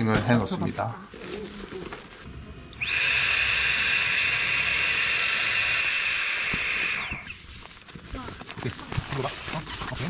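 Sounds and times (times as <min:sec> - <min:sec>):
electric air pump whining: 0:02.8 - 0:07.5.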